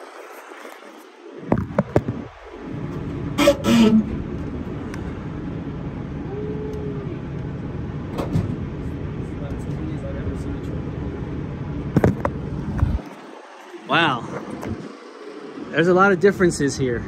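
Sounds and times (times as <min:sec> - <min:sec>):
truck hood clunking open: 0:08.1 - 0:08.6.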